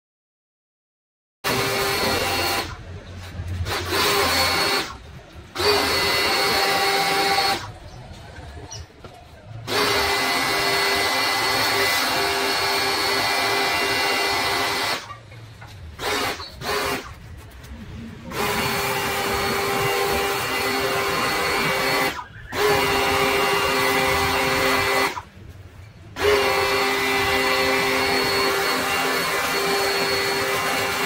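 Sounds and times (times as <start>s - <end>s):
pressure washer motor whine: 1.5s - 2.8s, 18.3s - 25.2s, 26.2s - 31.0s.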